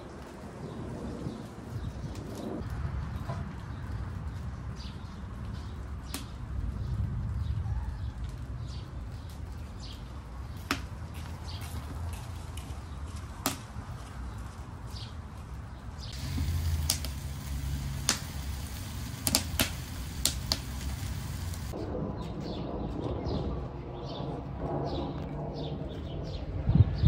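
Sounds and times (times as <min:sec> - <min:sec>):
wood fire crackling: 0:14.4 - 0:21.8
sharp fire pops: 0:16.1 - 0:21.8.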